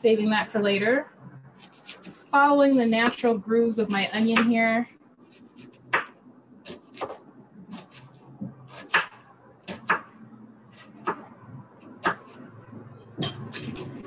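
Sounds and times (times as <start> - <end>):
knife slicing onion: 1.6 - 4.6, 5.2 - 10.1, 10.7 - 12.5.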